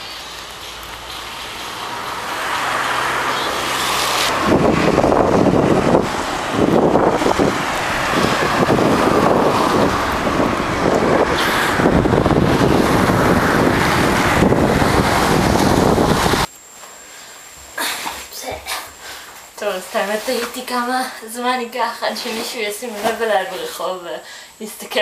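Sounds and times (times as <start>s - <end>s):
road traffic: 0.0s - 16.6s
wind buffeting microphone: 4.2s - 16.5s
faint high whine: 16.4s - 25.0s.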